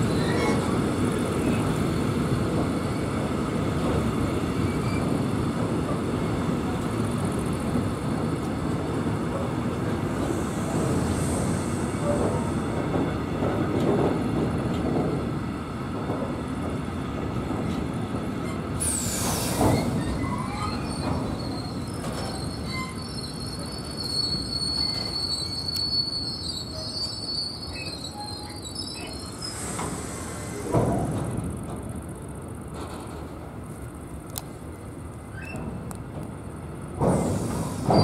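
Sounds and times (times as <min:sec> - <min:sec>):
train wheels rumbling on rails: 0:00.0 - 0:38.0
high wheel squeal: 0:18.4 - 0:30.7.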